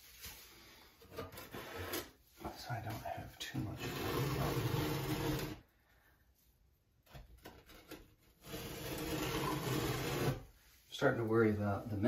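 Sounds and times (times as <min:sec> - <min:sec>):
scraper blade scraping tile: 0:01.4 - 0:02.2, 0:03.8 - 0:05.6, 0:08.4 - 0:10.5.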